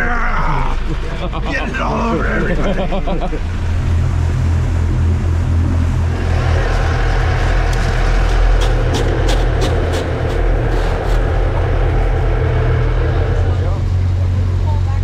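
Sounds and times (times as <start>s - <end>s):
boat engine running: 0.0s - 15.0s
rushing water: 3.1s - 14.6s.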